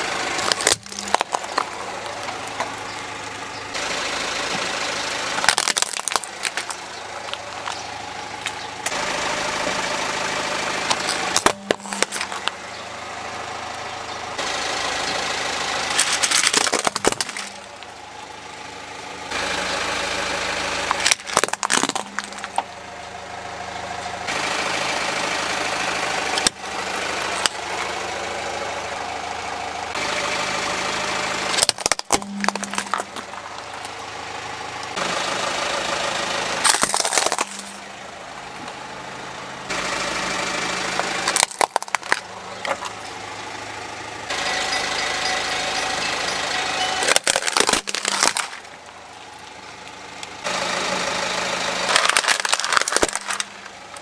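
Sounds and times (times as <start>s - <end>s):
car engine idling: 0.0s - 54.0s
plastic objects cracking under tyre: 0.2s - 3.6s, 5.3s - 9.1s, 10.8s - 12.6s, 15.9s - 18.0s, 20.8s - 22.7s, 26.3s - 27.9s, 31.6s - 34.0s, 36.6s - 37.9s, 41.0s - 43.2s, 47.0s - 50.4s, 51.8s - 54.0s.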